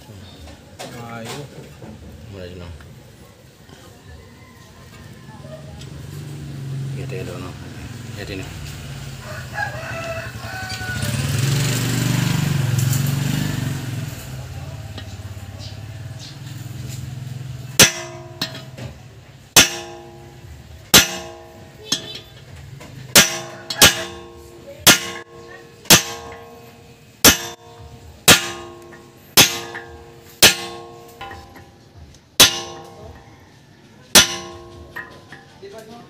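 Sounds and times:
hammer clanging on steel: 0:16.8 - 0:33.3, 0:34.1 - 0:35.7.

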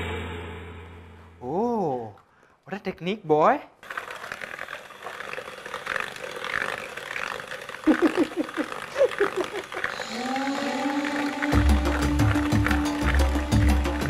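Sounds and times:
music: 0:00.0 - 0:01.5, 0:10.0 - 0:14.0
electric mixer whirring: 0:03.8 - 0:14.0
people laughing: 0:07.8 - 0:10.1
beaters knocking a plastic bowl: 0:11.3 - 0:14.0.

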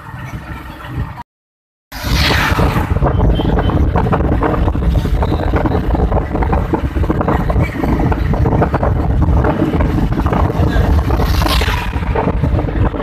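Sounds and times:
moving vehicle rumble: 0:00.0 - 0:01.2, 0:01.9 - 0:13.0
wind buffeting microphone: 0:00.0 - 0:01.2, 0:02.0 - 0:13.0.

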